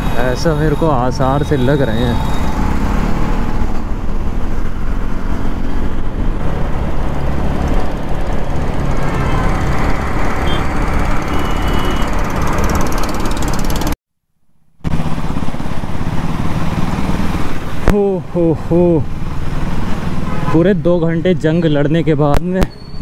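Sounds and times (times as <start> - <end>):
motorcycle engine running: 7.8 - 14.0.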